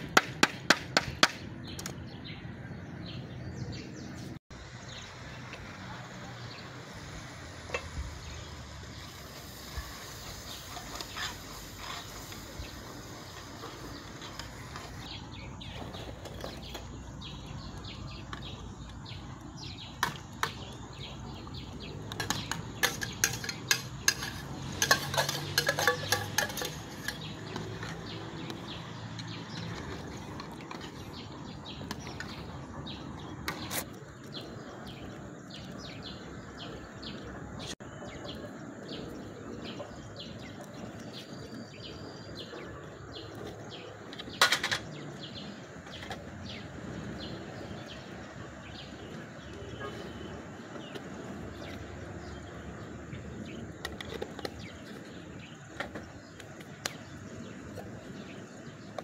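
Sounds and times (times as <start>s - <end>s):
metal spoon stirring in metal pot: 22.2s - 27.9s.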